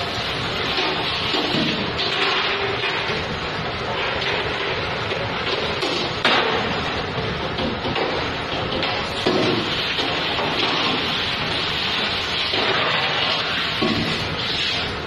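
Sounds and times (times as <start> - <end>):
spray hose hissing on metal pans: 0.0 - 15.0
metal pans clanking: 0.6 - 3.2.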